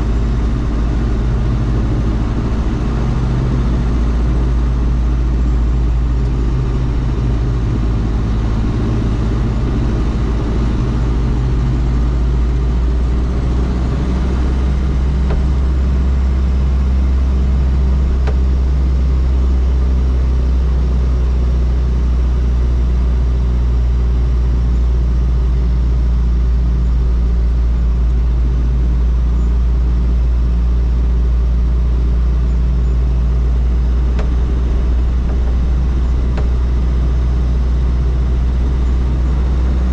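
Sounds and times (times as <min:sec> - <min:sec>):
diesel engine droning: 0:00.0 - 0:39.9.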